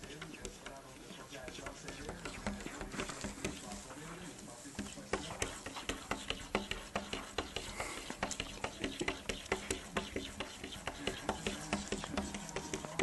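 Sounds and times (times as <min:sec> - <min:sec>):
cat claws scratching on glass: 0:00.0 - 0:03.9, 0:04.7 - 0:13.0.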